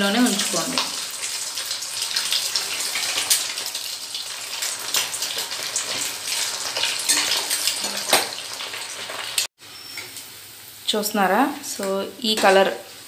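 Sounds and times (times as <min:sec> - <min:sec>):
food deep-frying in hot oil: 0:00.0 - 0:13.0
sharp oil crackles: 0:00.1 - 0:10.8.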